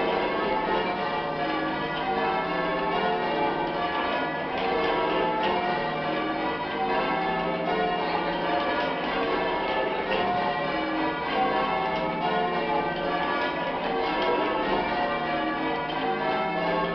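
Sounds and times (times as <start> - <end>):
church bells ringing: 0.0 - 16.9.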